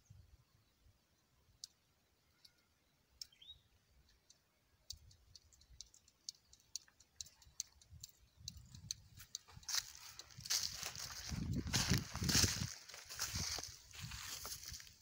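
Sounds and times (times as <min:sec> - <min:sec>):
faint high clicks: 0:01.6 - 0:11.3.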